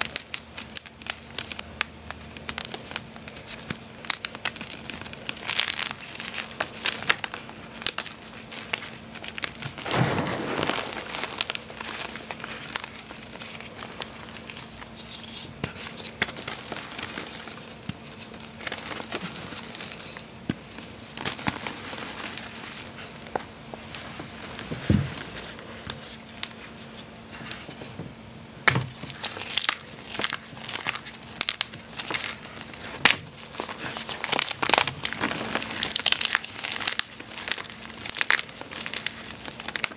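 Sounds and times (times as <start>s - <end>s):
chalk crumbling and crunching: 2.2s - 20.3s.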